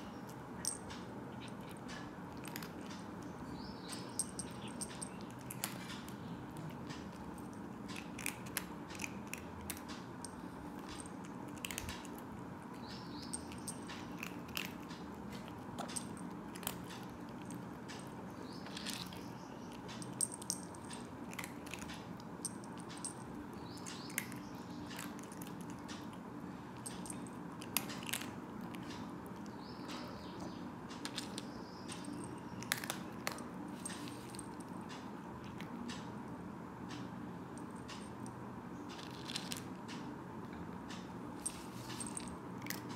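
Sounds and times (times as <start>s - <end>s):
cat crunching dry kibble: 0.2s - 29.6s, 30.9s - 35.8s, 38.9s - 39.9s, 41.5s - 42.9s.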